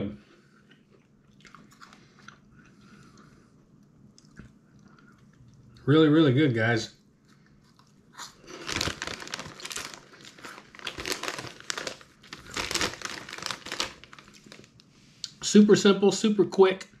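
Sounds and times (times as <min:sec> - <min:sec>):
plastic snack bag crackling: 0:08.3 - 0:14.8.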